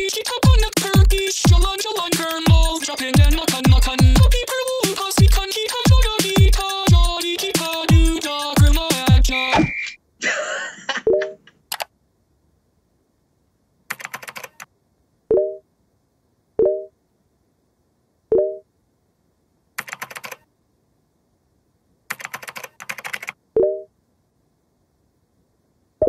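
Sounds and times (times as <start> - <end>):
computer keyboard typing: 11.1 - 11.9, 13.9 - 14.7, 19.8 - 20.5, 22.1 - 23.4
chat notification chimes: 16.6 - 16.9, 18.3 - 18.6, 23.6 - 23.9.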